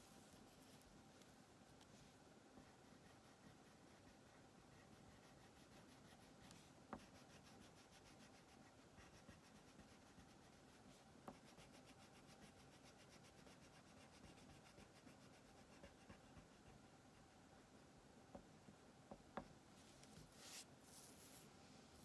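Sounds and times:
crayon scribbling on paper: 2.6s - 17.4s.

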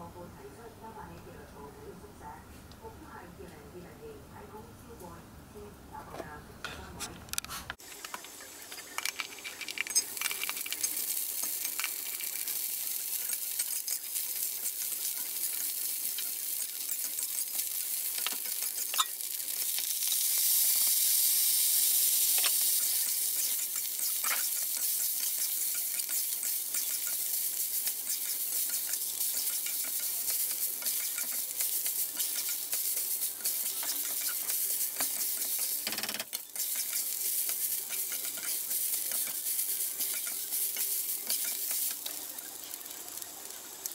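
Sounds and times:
food sizzling in a wok: 7.8s - 43.9s
metal spatula scraping a wok: 9.3s - 19.4s, 21.8s - 43.2s.

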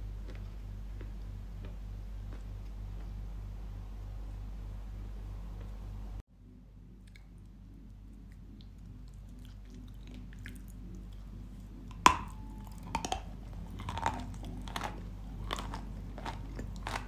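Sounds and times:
dry crunches of chewing: 0.0s - 3.2s, 7.0s - 17.0s.

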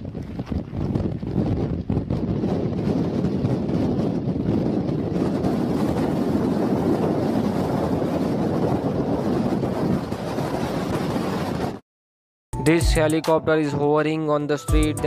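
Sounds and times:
wind buffeting microphone: 0.0s - 11.8s.

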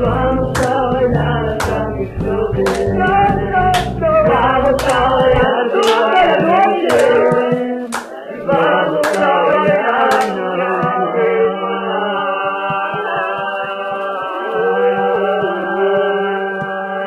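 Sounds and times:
song with singing over a beat: 0.0s - 17.0s.

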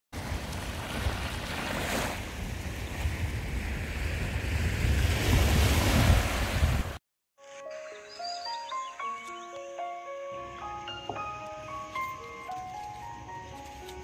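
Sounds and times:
small waves washing onto sand: 0.2s - 7.0s
wind buffeting microphone: 0.2s - 7.0s.

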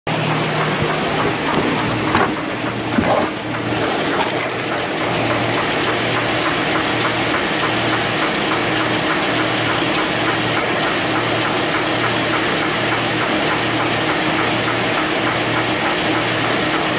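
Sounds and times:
repeating machinery clatter: 0.1s - 16.9s
loud knocks: 0.6s - 4.8s.

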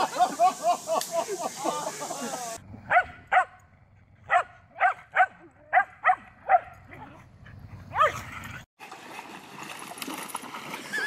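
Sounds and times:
river water flowing: 8.8s - 11.0s.

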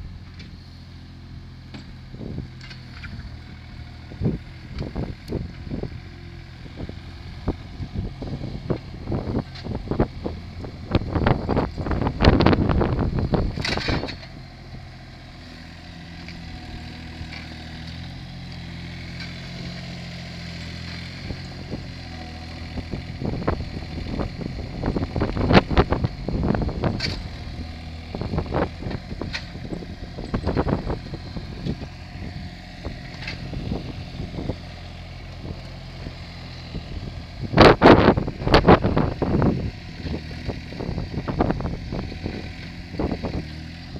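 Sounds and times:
loader engine running: 0.0s - 43.9s
sharp clunks and rattles: 13.4s - 14.4s, 26.5s - 27.5s, 28.2s - 31.9s.

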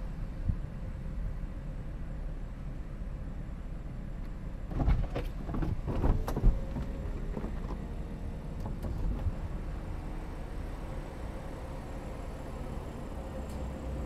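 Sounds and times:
roof latch clicks and clunks: 4.7s - 7.9s, 8.6s - 9.4s.

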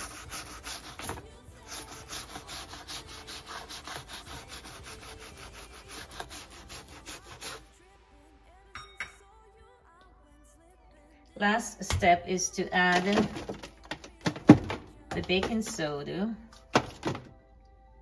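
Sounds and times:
toothbrush scrubbing rubber: 0.0s - 7.7s.

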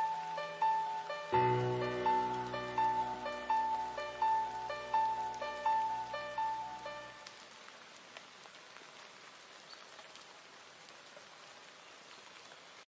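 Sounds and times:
soundtrack music: 0.0s - 7.2s
faint steady hiss: 0.0s - 12.8s.

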